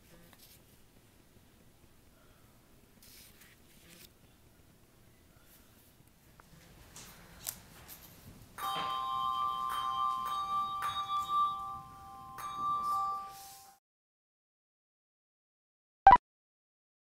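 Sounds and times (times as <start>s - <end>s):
handbells ringing chord: 8.6s - 13.8s.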